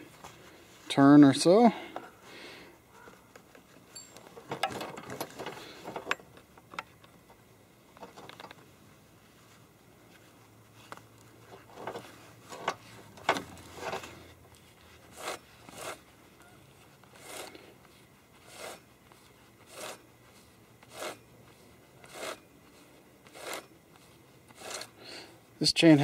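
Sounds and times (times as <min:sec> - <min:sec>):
chainsaw chain rasping in bar: 0:15.1 - 0:16.0, 0:17.1 - 0:17.7, 0:18.4 - 0:18.9, 0:19.6 - 0:20.0, 0:20.8 - 0:21.3, 0:22.0 - 0:22.5, 0:23.2 - 0:23.8, 0:24.5 - 0:25.2.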